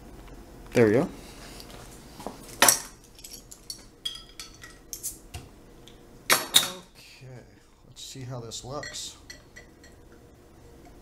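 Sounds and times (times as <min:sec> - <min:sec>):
glass bottles clinking: 0:02.6 - 0:04.8.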